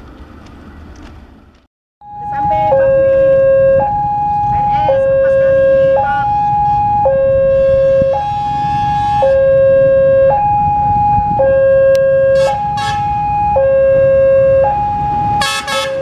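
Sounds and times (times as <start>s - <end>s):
two-tone crossing alarm: 2.0s - 16.0s.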